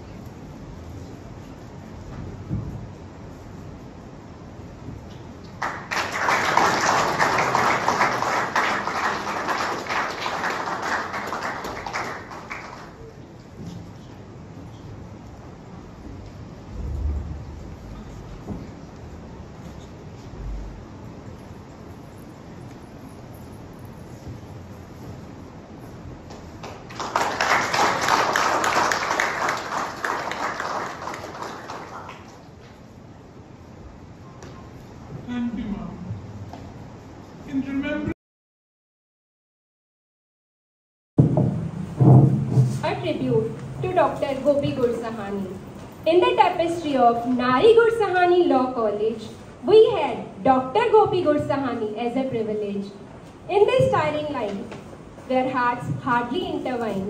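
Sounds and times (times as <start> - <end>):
audience applauding: 5.6 - 13.2, 26.6 - 32.5.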